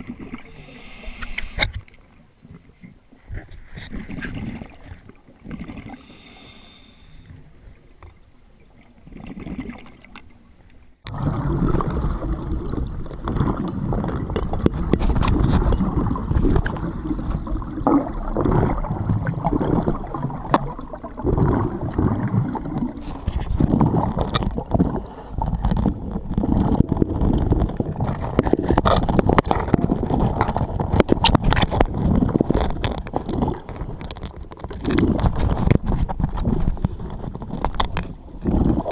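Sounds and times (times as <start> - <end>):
underwater bubbling: 0.0 - 38.9.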